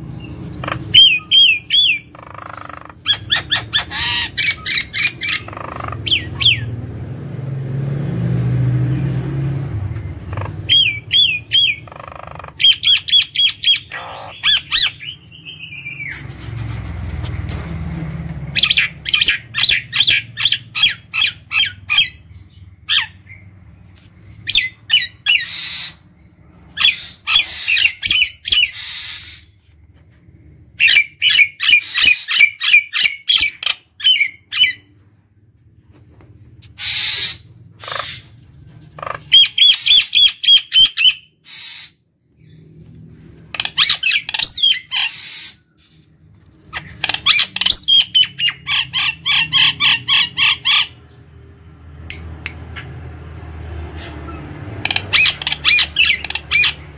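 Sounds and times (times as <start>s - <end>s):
myna bird singing: 0.0s - 7.0s, 8.9s - 16.4s, 18.5s - 29.6s, 36.2s - 45.8s, 46.7s - 56.9s.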